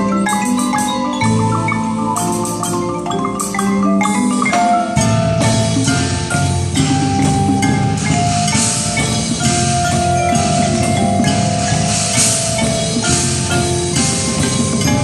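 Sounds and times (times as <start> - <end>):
marimba notes: 0.0 - 15.0
ringing sustained tones: 0.0 - 15.0
bright washy cymbal-like hits: 5.8 - 15.0.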